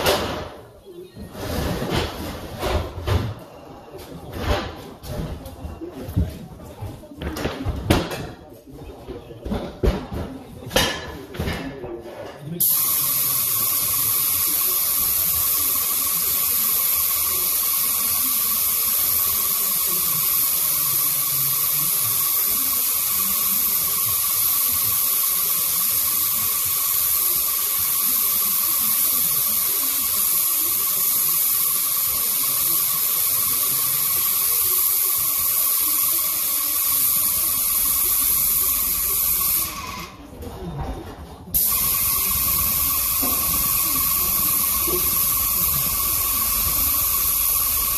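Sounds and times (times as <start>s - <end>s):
paint spray gun hissing: 12.6s - 40.0s, 41.6s - 47.9s.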